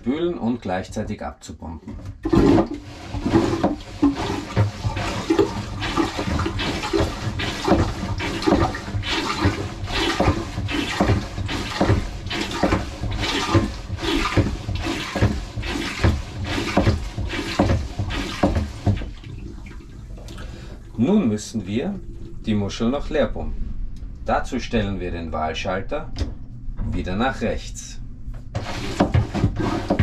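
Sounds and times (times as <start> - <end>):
water sloshing and gurgling: 1.8 - 24.4, 28.1 - 30.0
toilet hand pump strokes: 2.1 - 20.6, 28.6 - 30.0.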